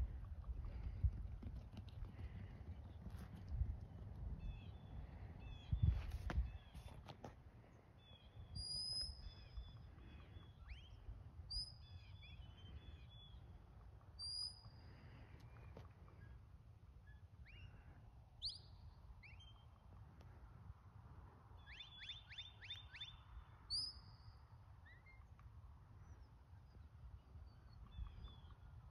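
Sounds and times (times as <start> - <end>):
wind rumble on microphone: 0.0 - 11.8.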